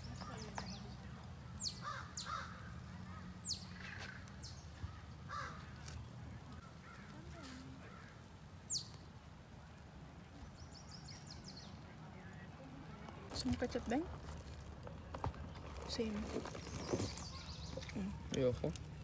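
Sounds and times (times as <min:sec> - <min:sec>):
sharp high bird calls: 0:01.6 - 0:05.7
crows cawing: 0:01.8 - 0:04.2, 0:04.8 - 0:06.0, 0:06.6 - 0:08.3.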